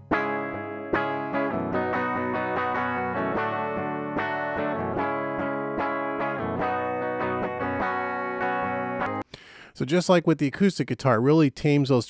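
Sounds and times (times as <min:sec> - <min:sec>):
electric guitar strumming chords: 0:00.0 - 0:09.2.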